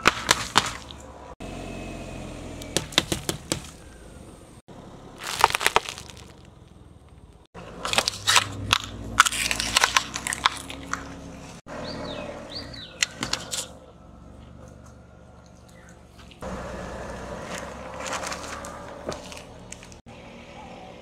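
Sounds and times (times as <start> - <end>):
car tyre crushing plastic items: 0.0 - 1.1, 5.1 - 11.6, 17.4 - 20.0.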